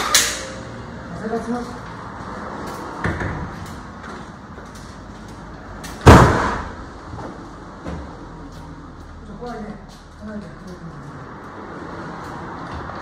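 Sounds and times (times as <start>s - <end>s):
loud bang: 6.0s - 6.8s.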